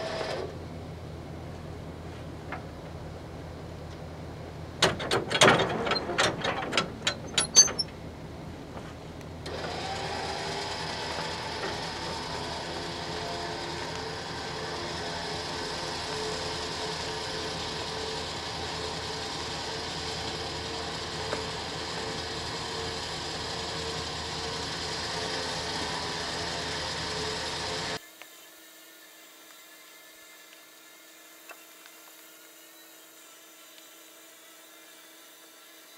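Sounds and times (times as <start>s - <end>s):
electric winch whirring: 0.0s - 0.6s, 9.4s - 28.0s
sharp clicks and clunks: 4.8s - 8.0s.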